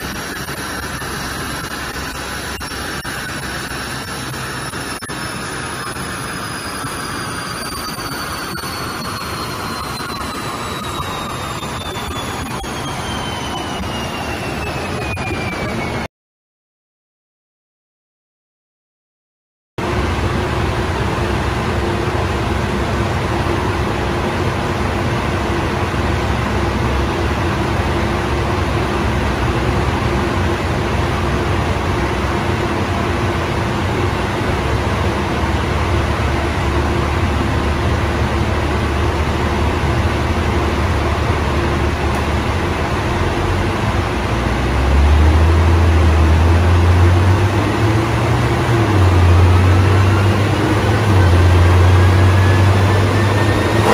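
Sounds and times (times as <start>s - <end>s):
car engine running: 19.8s - 53.9s.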